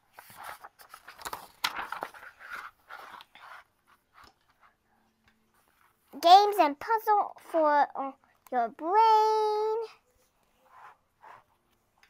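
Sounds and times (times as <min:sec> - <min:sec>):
book pages turning: 0:00.0 - 0:04.8.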